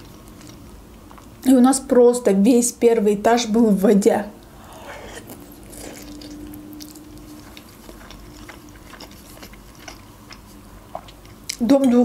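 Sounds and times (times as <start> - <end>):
faint steady hum: 0.0 - 12.0
person chewing: 4.4 - 11.6.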